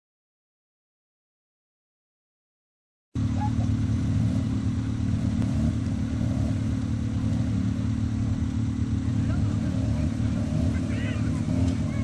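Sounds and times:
off-road vehicle engines running: 3.2 - 12.0
faint voices: 9.0 - 12.0.

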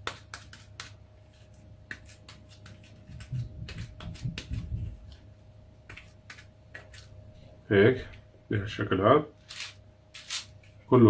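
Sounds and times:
dough clicking and crackling: 0.0 - 7.2
hands patting dough: 0.0 - 7.2.

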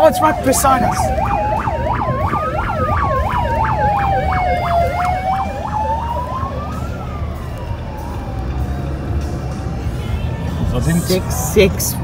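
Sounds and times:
siren fast yelp: 0.0 - 8.3
siren rising and falling wail: 0.0 - 10.0.

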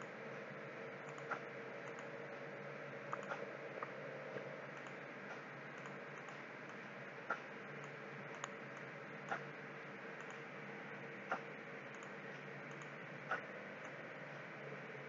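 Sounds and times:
faint background hum: 0.0 - 15.0
computer mouse clicks: 1.0 - 2.1, 3.1 - 3.9, 4.8 - 9.5, 10.2 - 10.4, 11.3 - 14.0.

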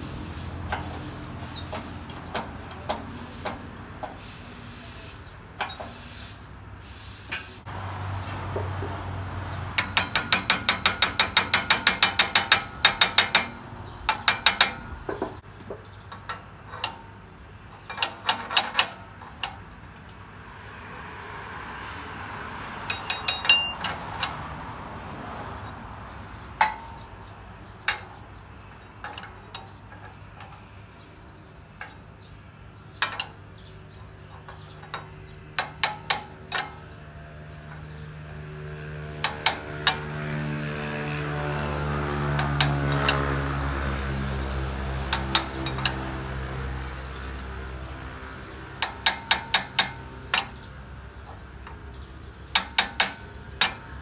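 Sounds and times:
scattered clicks and knocks: 0.7 - 4.2, 9.7 - 20.3, 22.8 - 24.5, 26.5 - 32.3, 32.9 - 46.6, 48.2 - 54.0.

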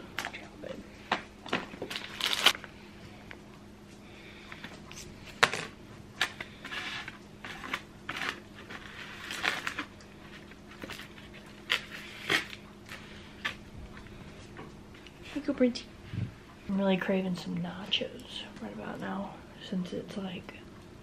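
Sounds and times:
faint low hum: 0.0 - 21.0
plastic bag rustling: 1.4 - 2.7, 5.0 - 14.5.

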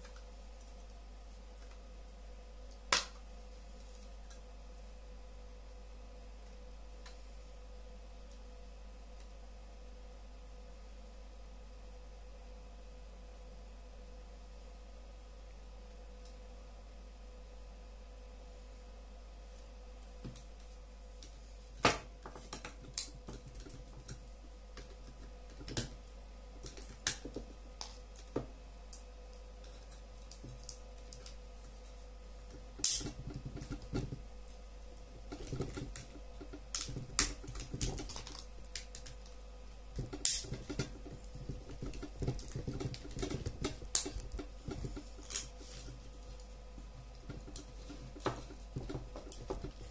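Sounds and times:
plastic parts clicking and snapping: 32.8 - 34.2, 35.3 - 39.4, 40.0 - 45.5.

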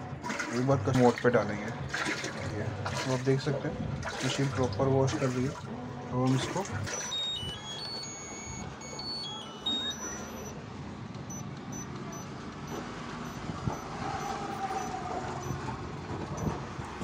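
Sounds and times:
washing machine running: 0.0 - 17.0
electronic beeping tones: 6.3 - 10.6, 11.2 - 15.7.

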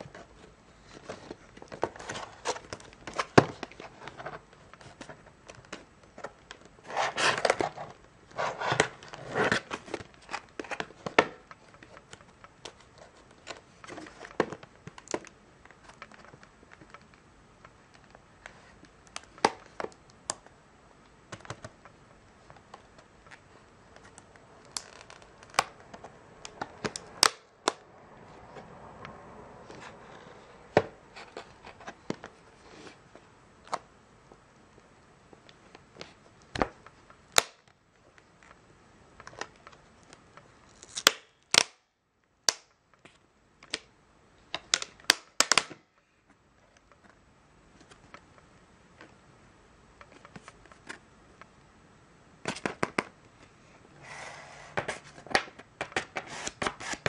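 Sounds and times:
plastic packaging crackling: 22.7 - 27.7.

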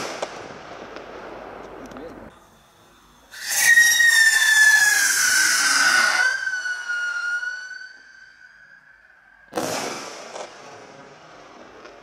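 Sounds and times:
whistle rocket lifting off: 2.4 - 10.4
shrill falling rocket whistle: 3.2 - 10.4.

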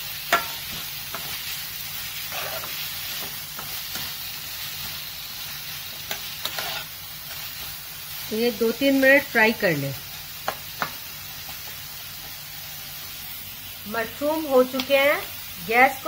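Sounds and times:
onions sizzling in oil: 0.0 - 16.0
spatula scraping a pan: 0.3 - 1.5, 2.2 - 4.2, 5.9 - 7.6.

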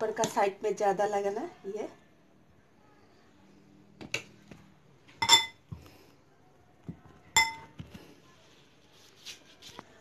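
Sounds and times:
dishware clinking: 5.2 - 5.6, 7.4 - 7.7.

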